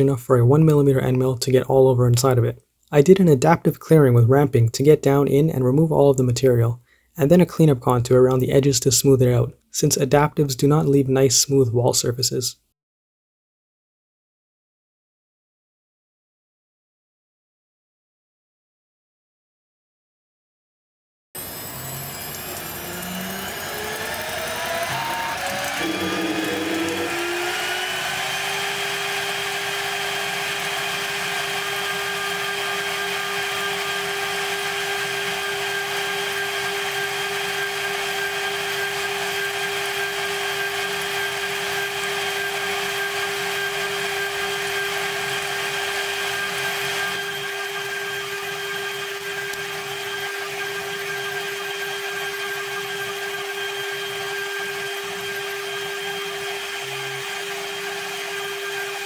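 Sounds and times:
mill spindle high whine: 0:21.4 - 0:59.0.

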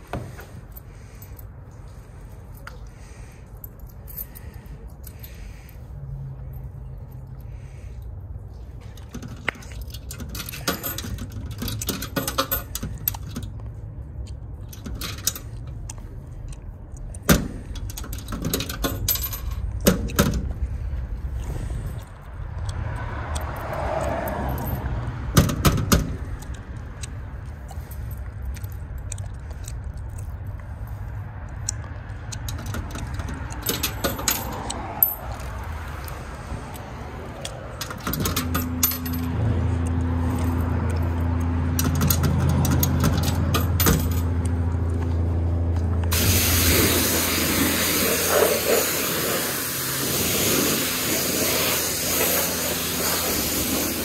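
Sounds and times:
metal tokens clinking into slot: 0:09.1 - 0:13.5, 0:14.7 - 0:15.5, 0:41.8 - 0:44.3.

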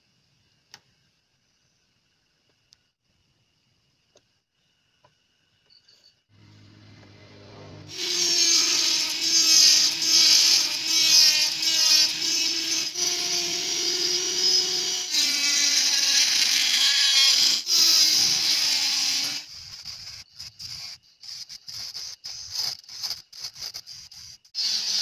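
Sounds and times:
rotary grinder cutting plastic: 0:07.0 - 0:25.0.

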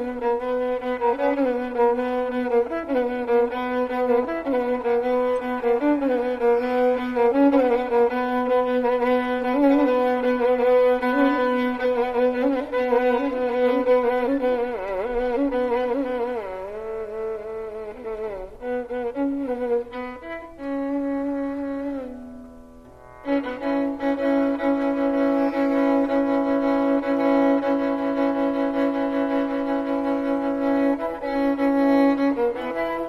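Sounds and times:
slow melody of wavering held notes: 0:17.4 - 0:33.0.

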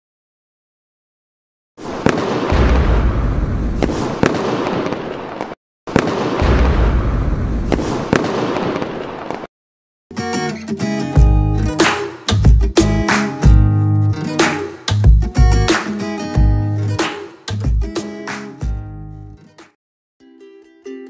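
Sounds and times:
fireworks crackling: 0:01.8 - 0:06.7, 0:07.6 - 0:09.5
sharp cracks: 0:01.8 - 0:09.5, 0:11.8 - 0:12.3
guitar music: 0:10.1 - 0:19.6, 0:20.2 - 0:21.0.

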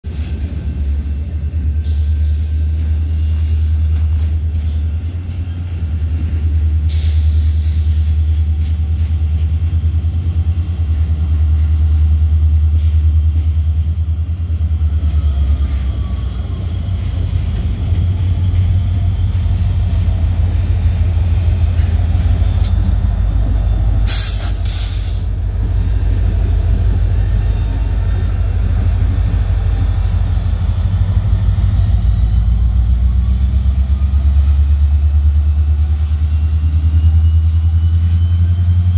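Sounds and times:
freight train rumbling past: 0:00.0 - 0:38.9
loud hiss: 0:24.0 - 0:25.4.

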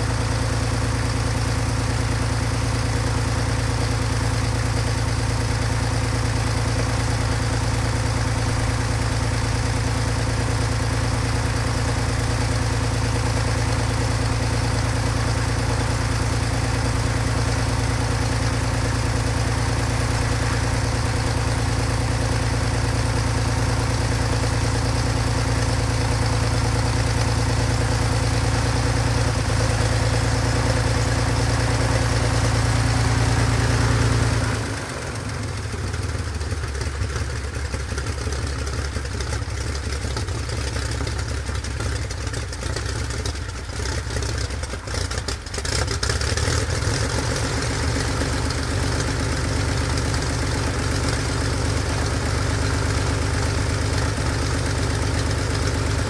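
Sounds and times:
aircraft engine running: 0:00.0 - 0:56.0.

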